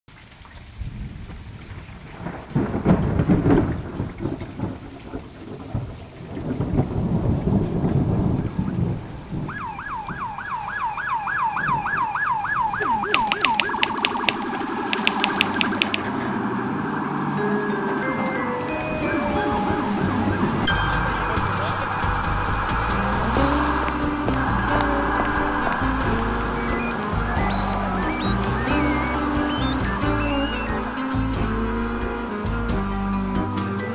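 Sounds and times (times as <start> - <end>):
steady rain: 0.1 - 17.4, 18.6 - 33.9
thunder rolling: 0.8 - 10.4, 18.9 - 33.0
siren yelping: 9.5 - 17.6, 18.8 - 32.2
sharp clicks: 12.8 - 16.1.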